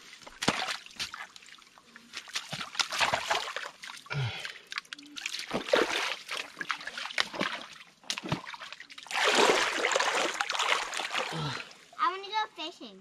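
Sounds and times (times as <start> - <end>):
hands packing mud: 0.0 - 8.4
wading steps through water: 0.0 - 11.9
creek water splashing: 0.0 - 12.0.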